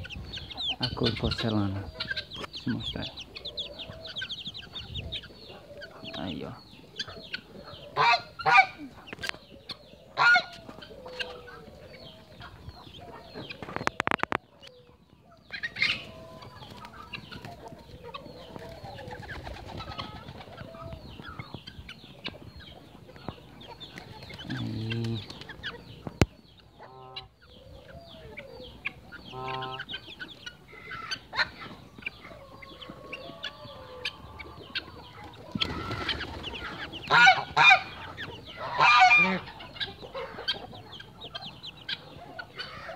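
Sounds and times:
chicks peeping: 0.0 - 42.9
deeper bird calls: 32.4 - 40.5.

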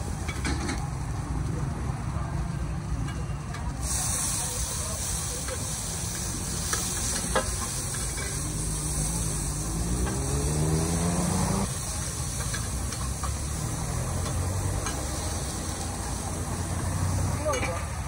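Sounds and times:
eggs sizzling in frying pan: 3.7 - 18.0.

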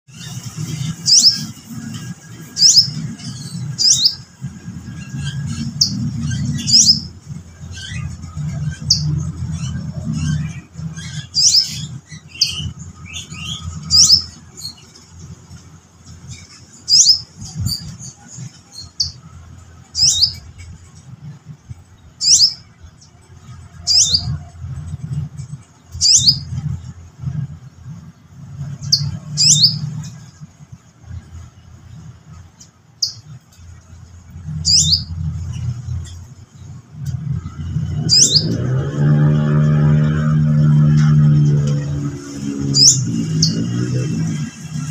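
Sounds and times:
low hum: 0.1 - 44.9
bird calling: 34.6 - 35.2.

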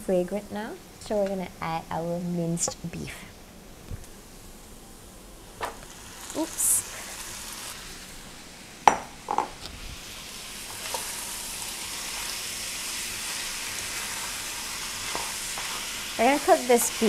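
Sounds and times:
meat sizzling in a wok: 5.5 - 17.0
spatula stirring: 13.3 - 17.0.

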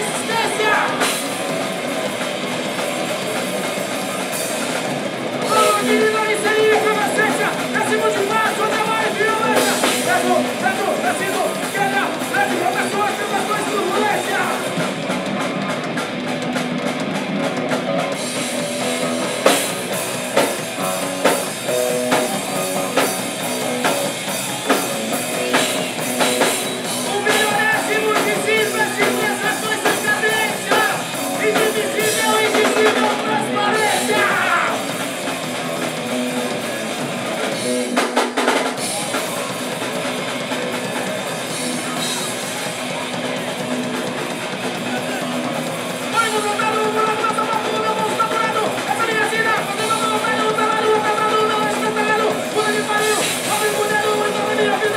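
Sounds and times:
shouted vocals: 0.0 - 1.2, 5.4 - 14.8, 26.8 - 35.0, 44.8 - 54.9
distorted electric guitars and bass: 0.0 - 54.9
pounding drum kit: 0.0 - 54.9.

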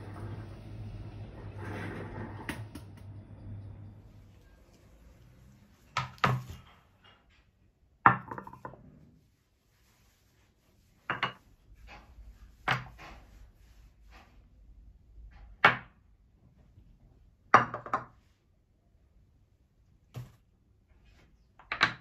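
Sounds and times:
dishes knocking on marble tabletop: 8.1 - 8.8, 11.1 - 11.4, 17.5 - 18.1.

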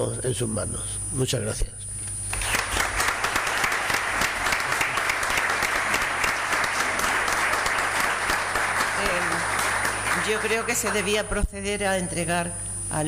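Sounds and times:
audience applauding: 2.3 - 11.3.

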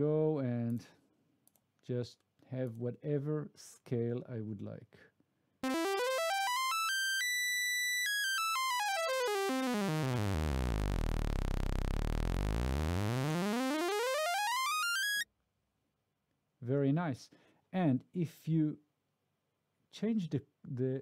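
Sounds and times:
buzzy synthesizer tone stepping pitch: 5.6 - 15.2.

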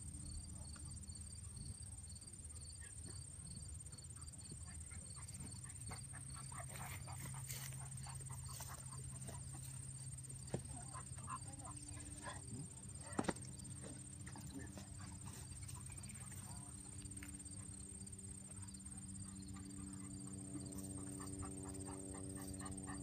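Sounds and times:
insect chirping: 0.0 - 23.0
insects buzzing: 0.0 - 23.0.

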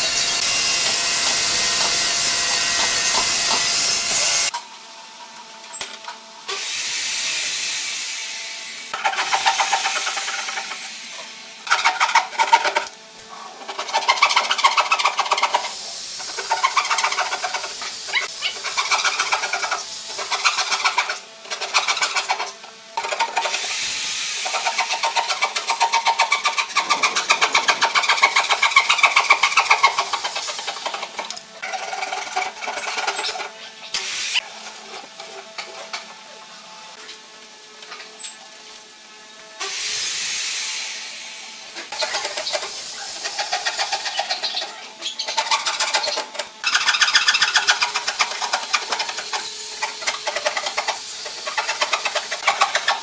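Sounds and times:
motor hum: 23.1 - 34.0.

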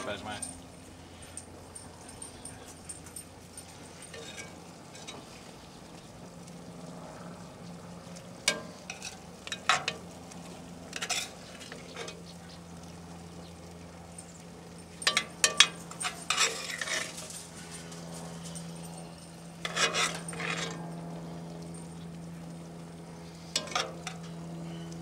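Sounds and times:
steady low hum: 0.0 - 25.0
metal clinking on iron pot: 1.7 - 5.4, 8.4 - 12.4, 14.1 - 21.0, 23.5 - 24.8
metal spoon scraping pot: 4.1 - 5.2, 10.9 - 12.2, 15.0 - 17.3, 19.6 - 20.8.

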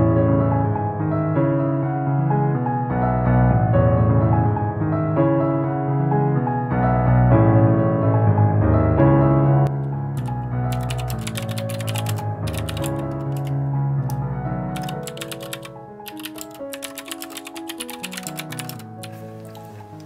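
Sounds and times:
soft piano-like music: 0.0 - 20.0
computer keyboard typing: 10.2 - 20.0.

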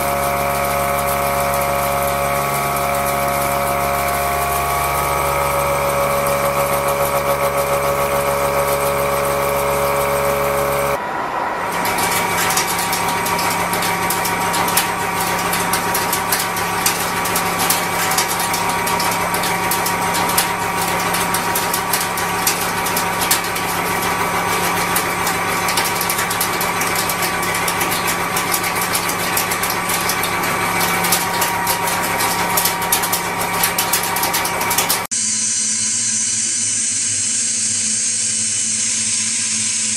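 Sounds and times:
milling machine hum with whine: 0.0 - 39.9
cutter clattering on steel: 11.7 - 35.1.

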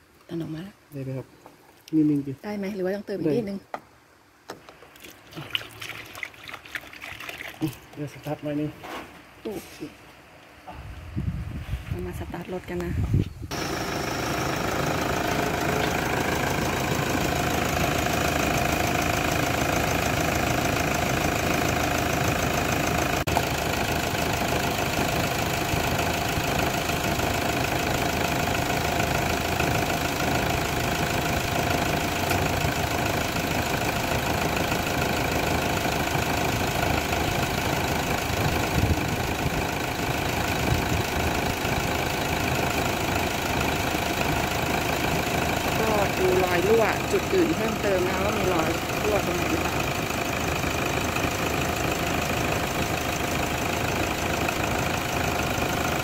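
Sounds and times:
steady whine: 13.5 - 34.3
pickup engine idling: 13.5 - 56.0.

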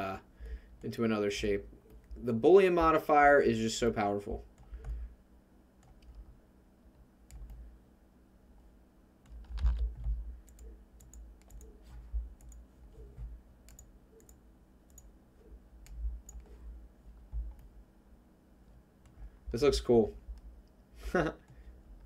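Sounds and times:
mouse and keyboard clicks: 9.2 - 12.6
soft low thumps: 11.8 - 13.5, 15.8 - 17.8.

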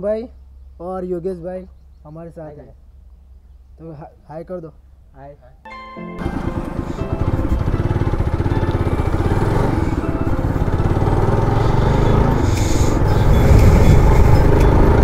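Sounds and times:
motorcycle engine running: 6.2 - 15.0
wind rushing over microphone: 11.7 - 15.0.

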